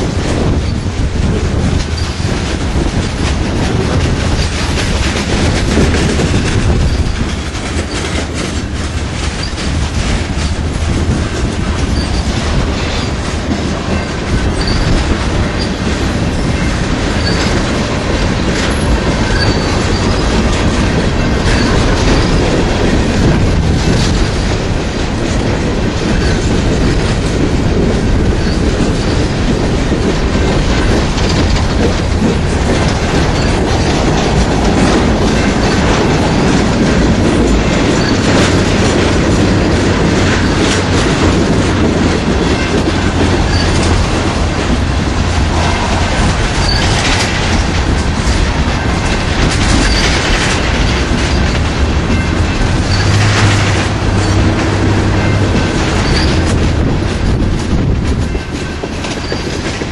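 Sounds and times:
train wheels rumbling on rails: 0.0s - 59.9s.

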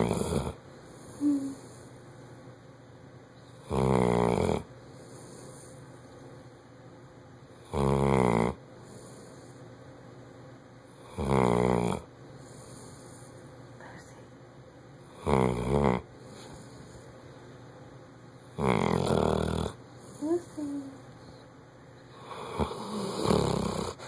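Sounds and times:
dog snoring: 0.0s - 1.9s, 3.5s - 5.9s, 7.5s - 9.6s, 10.9s - 13.5s, 15.1s - 17.1s, 18.5s - 20.9s, 22.1s - 24.0s.

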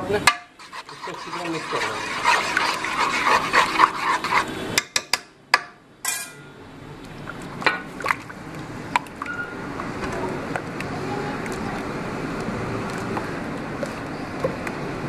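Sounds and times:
spoon scraping metal pot: 0.4s - 5.0s.

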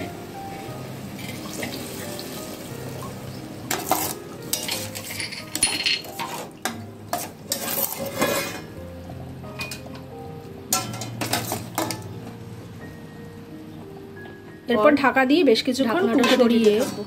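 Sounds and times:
curry sloshing and sizzling: 0.0s - 12.4s
spatula knocking and scraping pan: 6.0s - 8.8s, 16.1s - 17.0s.

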